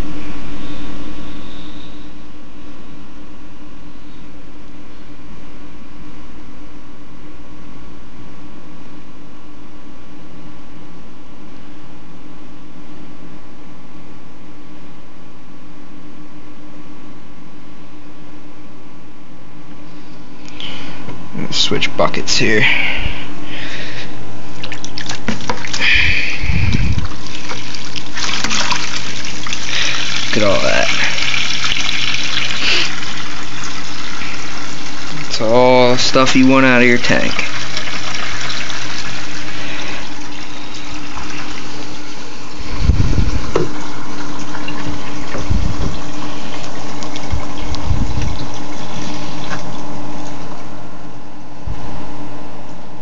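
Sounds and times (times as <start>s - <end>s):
water splashing into plastic bucket: 24.6s - 26.0s, 26.7s - 35.4s, 36.2s - 50.6s
low thumps: 42.7s - 44.0s, 44.8s - 46.2s
hose knocking: 43.4s - 43.8s.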